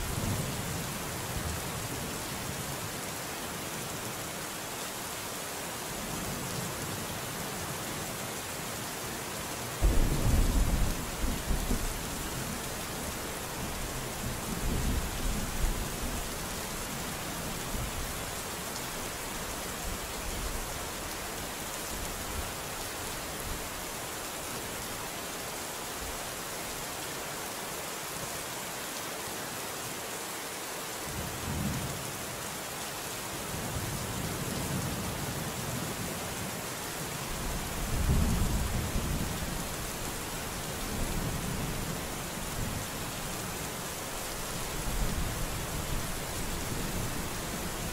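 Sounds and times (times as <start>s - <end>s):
thunder rumbling: 9.8s - 12.1s
heavy rain hissing: 37.0s - 47.9s.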